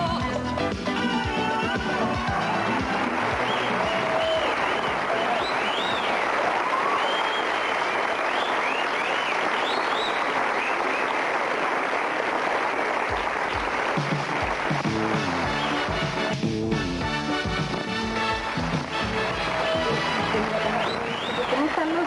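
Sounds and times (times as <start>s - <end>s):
audience applauding and cheering: 0.0s - 22.0s
whistles: 3.4s - 11.2s, 20.7s - 21.6s
music with stepping bass line: 14.0s - 20.8s.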